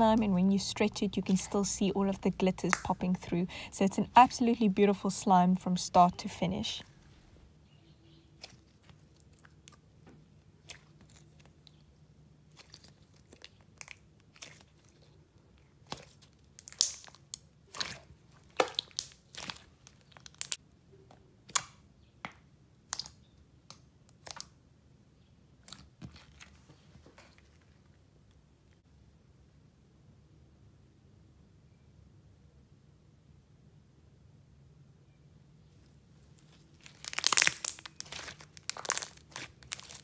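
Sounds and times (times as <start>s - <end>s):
slime squeezed wet pops: 15.9s - 19.6s.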